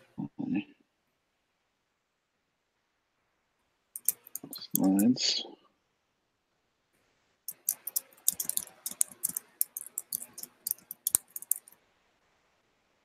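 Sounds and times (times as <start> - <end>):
computer mouse clicking: 4.0 - 5.1, 7.5 - 11.8.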